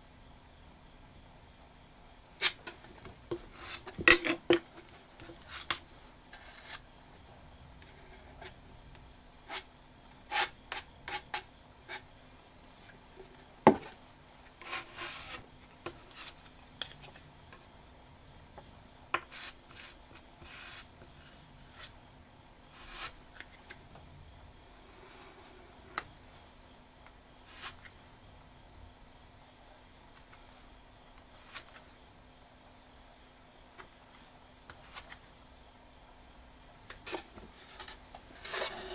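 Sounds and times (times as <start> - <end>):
wooden spatula scraping and tapping: 2.4 - 6.8, 19.1 - 21.2, 36.9 - 38.9.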